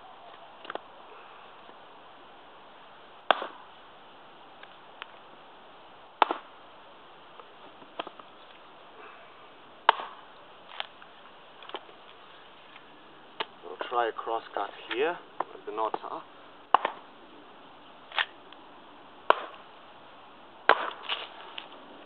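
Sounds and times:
axe chopping log: 0:03.3 - 0:03.7, 0:06.2 - 0:06.5, 0:09.8 - 0:10.8, 0:16.7 - 0:17.1, 0:19.2 - 0:19.6, 0:20.7 - 0:21.4.

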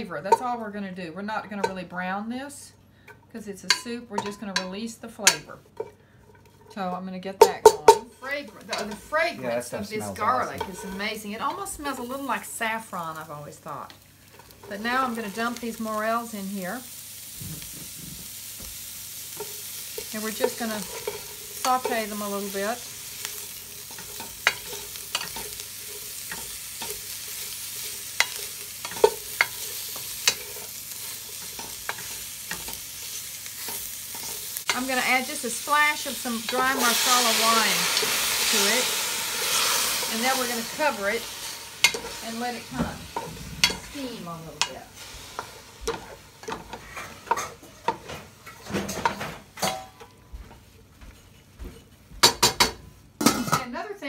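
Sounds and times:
mushrooms sizzling in a pot: 0:00.0 - 0:02.7, 0:03.3 - 0:54.0
wooden spatula scraping a pot: 0:10.2 - 0:11.7, 0:19.3 - 0:35.0, 0:39.4 - 0:49.2, 0:50.0 - 0:52.2.

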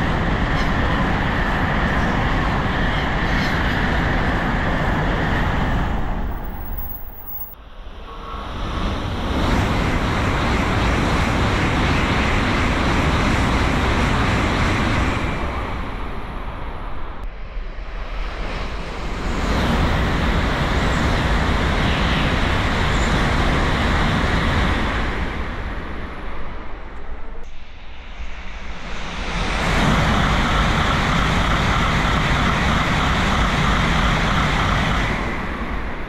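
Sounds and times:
high-speed trains passing: 0:00.0 - 0:36.0.

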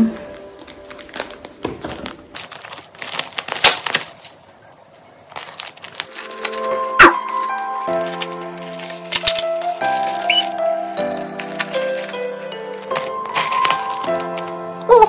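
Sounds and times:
background music with held tones: 0:00.0 - 0:02.3, 0:06.0 - 0:15.0
plastic wrapping crinkling: 0:00.0 - 0:15.0.

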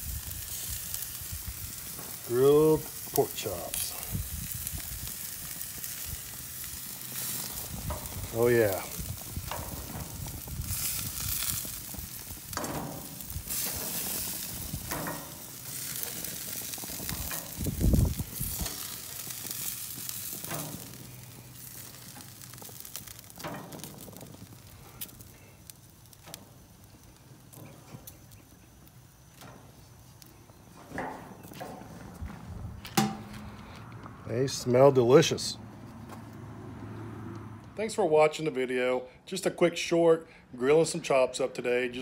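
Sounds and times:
meat sizzling on a grill: 0:00.0 - 0:31.5
tongs clicking on metal grates: 0:14.8 - 0:16.1.

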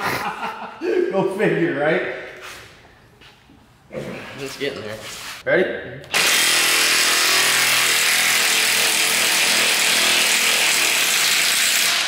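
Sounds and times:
power tool running: 0:06.1 - 0:12.0.

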